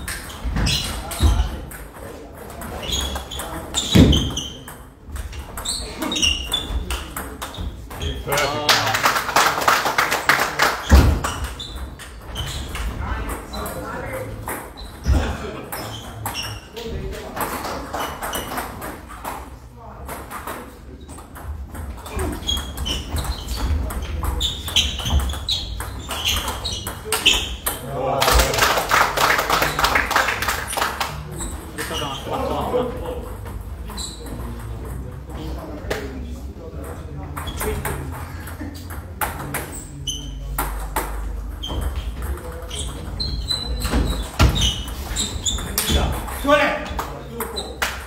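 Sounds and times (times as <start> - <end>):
shoes squeaking on wooden floor: 0.0 - 1.7, 2.6 - 8.5, 10.8 - 17.1, 21.0 - 28.7, 33.5 - 34.7, 39.5 - 47.8.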